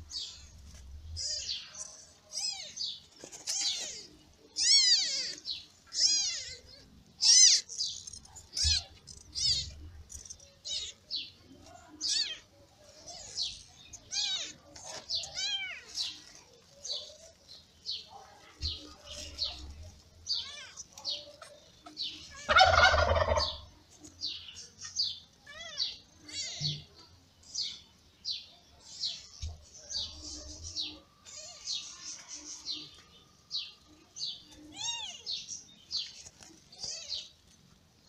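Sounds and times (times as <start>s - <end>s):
newborn kittens mewing: 2.3s - 7.8s, 8.4s - 9.8s, 12.0s - 12.5s.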